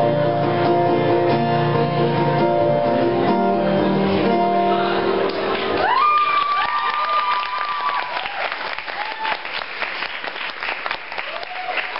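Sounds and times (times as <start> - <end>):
audience applause and cheers: 5.2 - 11.9
whoops: 5.8 - 9.6, 11.2 - 11.9.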